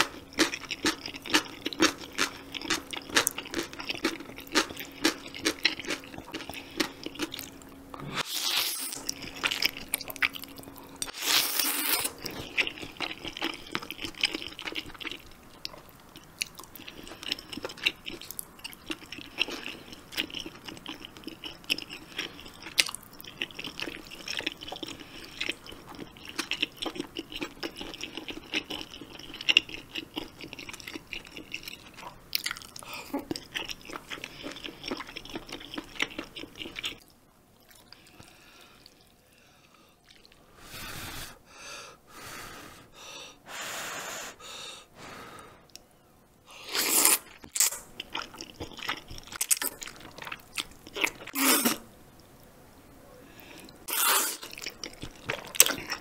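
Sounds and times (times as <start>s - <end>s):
chewing with wet mouth clicks: 0.0s - 7.6s, 12.2s - 39.2s, 40.0s - 40.4s, 47.3s - 51.4s, 54.4s - 56.0s.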